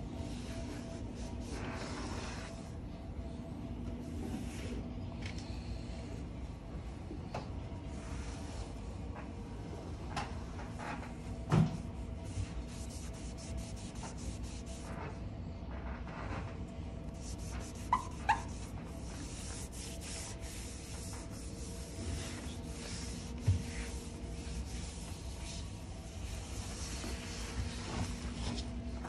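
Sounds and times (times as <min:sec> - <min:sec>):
cloth rubbing on painted steel: 0:12.2 - 0:15.2, 0:17.1 - 0:28.8.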